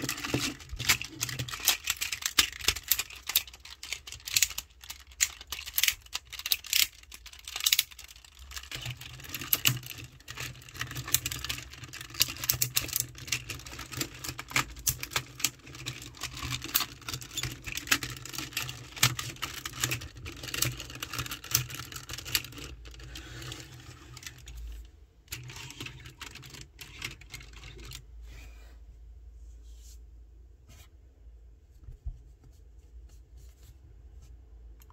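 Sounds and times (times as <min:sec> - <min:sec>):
plastic toy clicking and snapping: 0:00.0 - 0:23.6.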